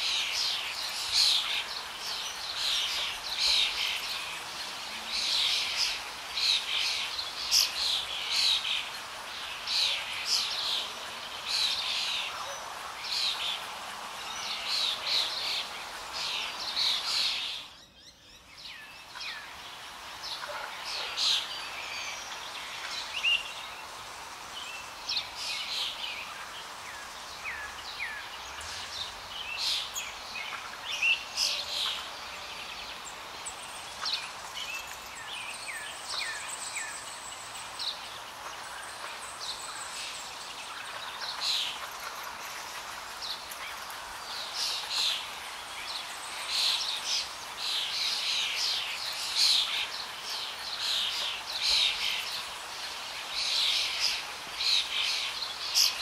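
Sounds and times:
background hiss: 0.0s - 56.0s.

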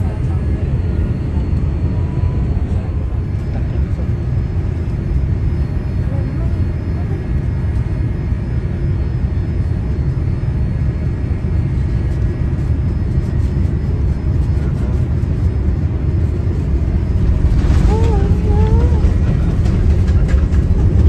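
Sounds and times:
vehicle engine rumbling: 13.4s - 21.0s.

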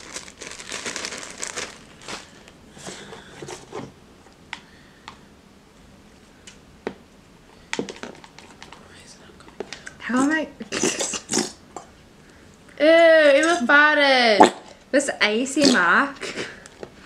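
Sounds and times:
plastic bag crinkling: 0.0s - 3.6s
faint sharp clicks and taps: 7.7s - 10.0s.

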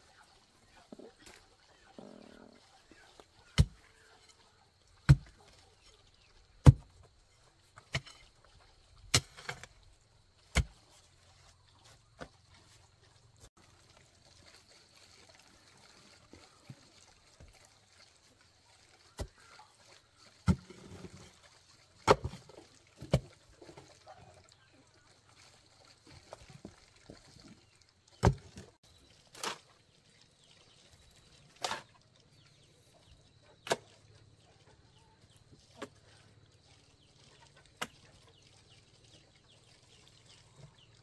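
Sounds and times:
digging tool chopping into soil: 5.1s - 5.3s, 6.6s - 6.8s, 10.5s - 10.8s.

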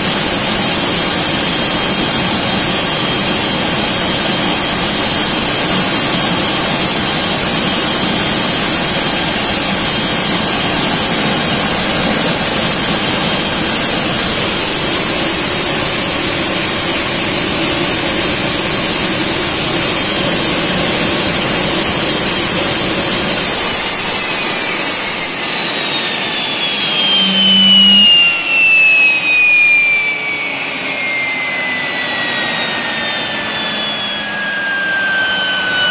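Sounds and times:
gas turbine whine: 0.0s - 35.9s.

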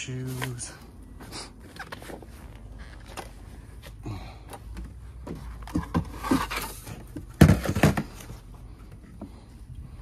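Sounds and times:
rummaging through junk by hand: 0.1s - 9.4s
objects clattering: 5.2s - 8.4s.

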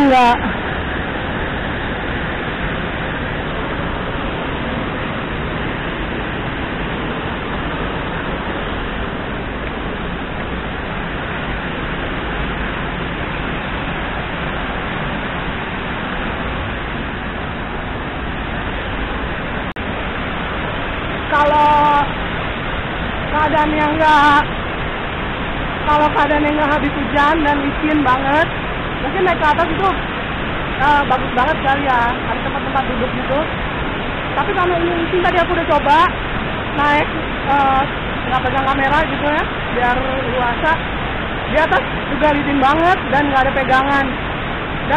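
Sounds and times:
woman's voice: 0.0s - 0.6s, 21.3s - 22.1s, 23.3s - 24.5s, 25.9s - 30.0s, 30.8s - 33.5s, 34.4s - 36.2s, 36.8s - 40.8s, 41.5s - 44.2s
waterfall rushing: 0.0s - 44.9s.

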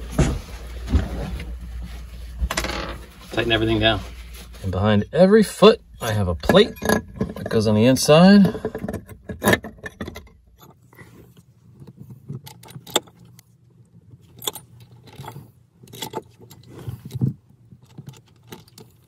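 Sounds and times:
low hum: 0.0s - 9.2s
metal hardware clinking: 6.4s - 10.8s.

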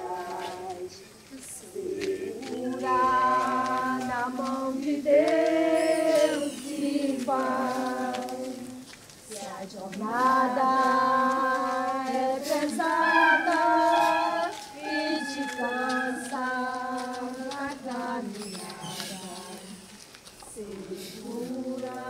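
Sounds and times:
women and children singing hymn: 0.0s - 22.0s.

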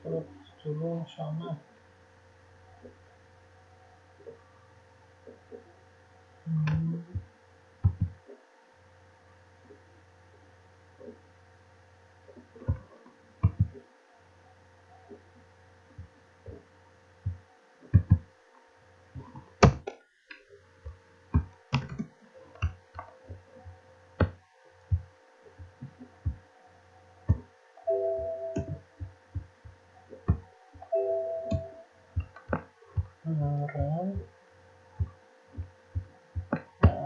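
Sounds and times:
low electrical hum: 0.0s - 37.0s
keyboard typing: 27.3s - 29.1s, 30.1s - 33.1s
computer alert chime: 27.9s - 28.8s, 30.8s - 31.8s.

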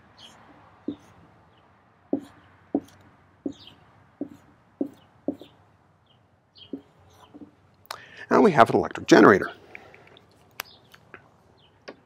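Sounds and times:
marker strokes on whiteboard: 0.2s - 1.4s, 2.1s - 5.6s, 6.7s - 7.6s.

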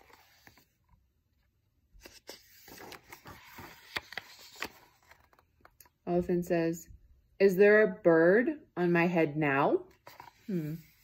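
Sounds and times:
paper pages turning: 0.0s - 1.0s, 2.0s - 5.9s, 9.9s - 11.0s.

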